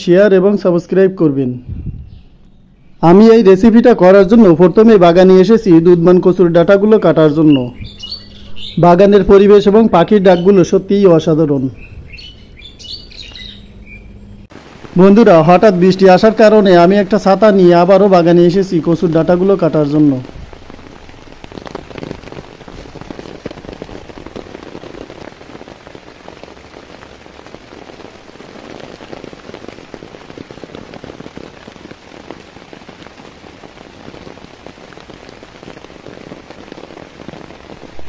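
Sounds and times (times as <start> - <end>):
rain pattering on umbrella and leaves: 14.5 - 38.0.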